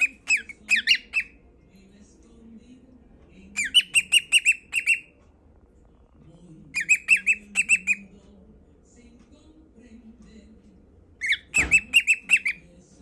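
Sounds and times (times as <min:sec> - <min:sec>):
cockatiel chirping: 0:00.0 - 0:01.4, 0:03.6 - 0:05.1, 0:06.7 - 0:08.1, 0:11.2 - 0:12.7.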